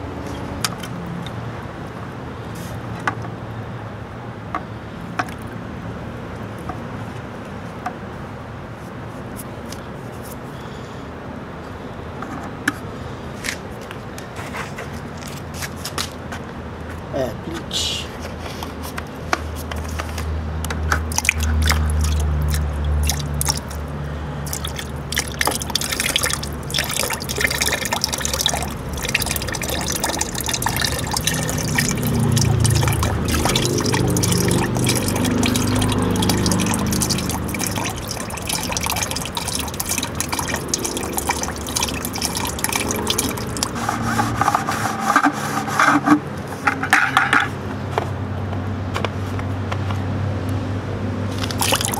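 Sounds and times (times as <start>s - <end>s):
liquid glugging and splashing: 20.9s - 44.7s, 51.3s - 51.9s.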